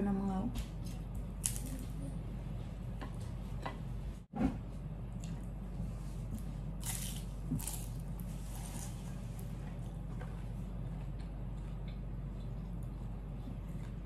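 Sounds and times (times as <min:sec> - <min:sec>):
steady low hum: 0:00.0 - 0:14.0
crunchy chewing: 0:06.4 - 0:14.0.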